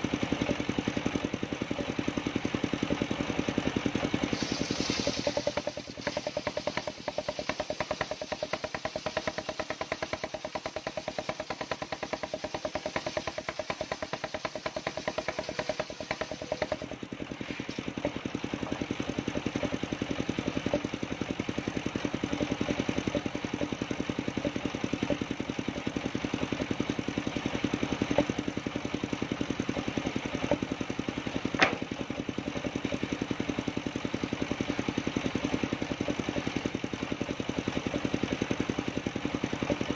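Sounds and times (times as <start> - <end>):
engine firing steadily: 0.0 - 39.9
sharp knock: 31.6 - 31.9.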